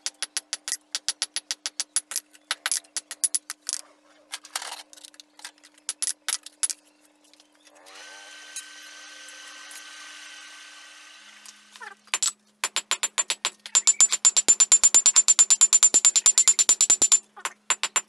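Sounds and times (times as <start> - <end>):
forge blower whine: 7.9 - 11.8.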